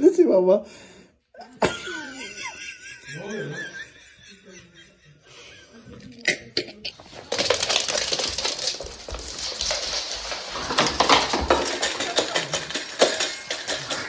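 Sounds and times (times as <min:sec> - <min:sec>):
dog eating from metal bowl: 0:07.1 - 0:14.0.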